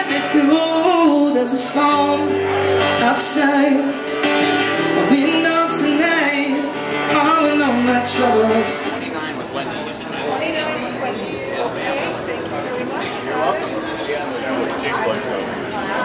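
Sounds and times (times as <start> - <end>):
man singing into a microphone: 0.0 - 4.2, 4.9 - 9.2
strummed acoustic guitar: 0.0 - 16.0.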